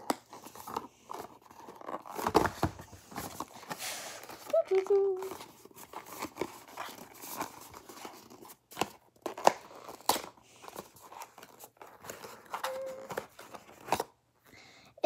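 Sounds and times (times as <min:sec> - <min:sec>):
packaging crinkling and clicking: 0:04.3 - 0:14.2.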